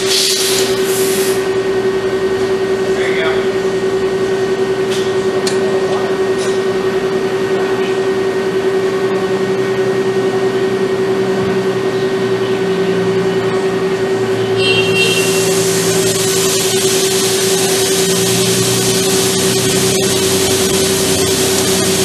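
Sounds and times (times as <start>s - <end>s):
robot arm machine hum: 5.2s - 22.0s.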